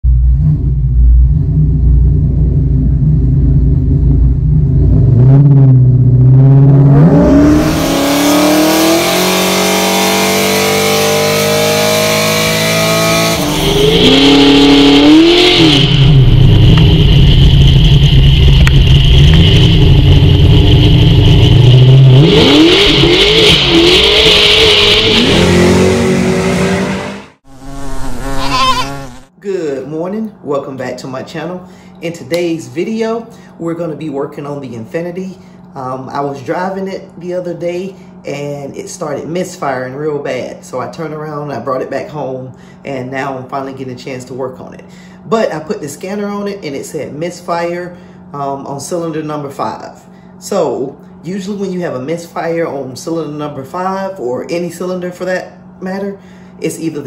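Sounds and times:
car engine revving: 0.0s - 29.3s
high squeal of tyres: 28.3s - 29.1s.

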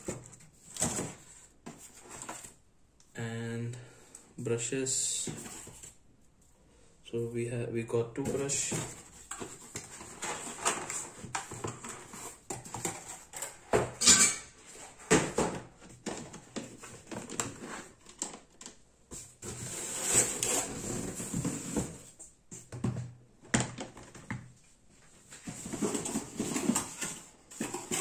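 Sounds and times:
cardboard scraping and rustling: 0.0s - 2.6s, 5.2s - 6.0s, 8.2s - 14.0s, 14.6s - 22.7s, 25.1s - 28.0s.

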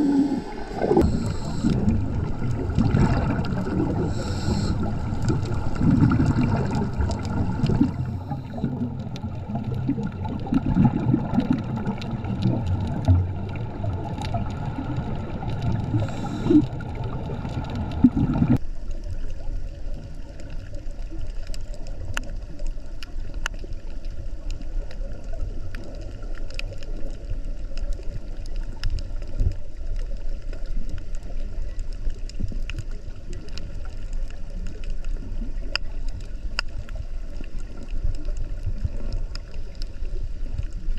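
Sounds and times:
underwater hiss: 0.0s - 10.1s, 10.9s - 18.6s
low rumbling water noise: 0.0s - 40.9s.

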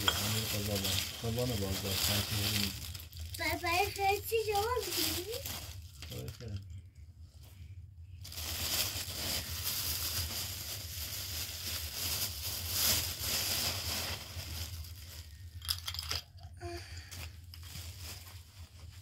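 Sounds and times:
plastic bags crinkling: 0.0s - 6.6s, 8.2s - 19.0s
nuts rattling and crunching: 15.2s - 16.4s.

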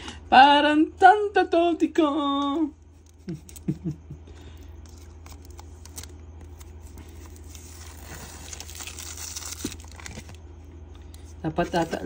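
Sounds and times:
plastic sleeve crinkling: 4.8s - 12.0s.

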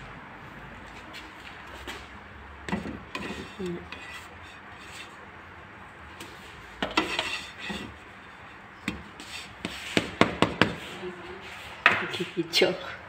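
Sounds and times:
spatula scraping frying pan: 2.9s - 5.3s, 6.2s - 12.2s.

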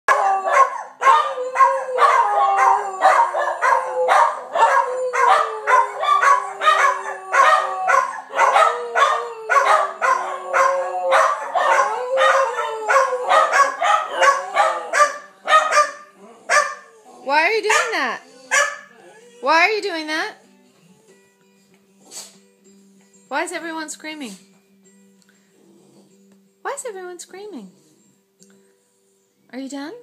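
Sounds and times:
dogs barking and yipping: 0.1s - 19.6s
dogs howling: 0.1s - 19.6s.

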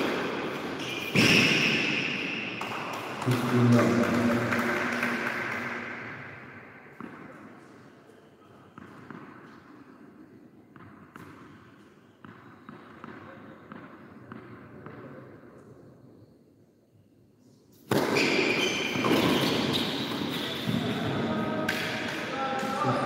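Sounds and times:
tennis ball bouncing on hard court: 6.9s - 7.7s, 8.8s - 9.9s, 10.7s - 11.6s, 12.2s - 15.2s, 17.9s - 21.0s.

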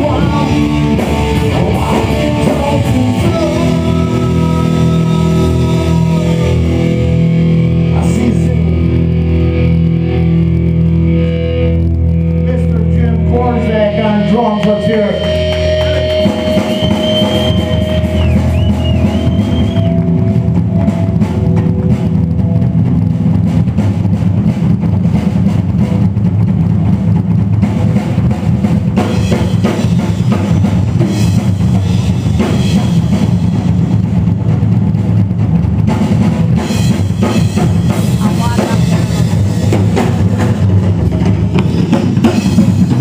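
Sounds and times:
drum kit solo: 0.0s - 43.0s
guitar chord ringing: 8.7s - 23.8s.

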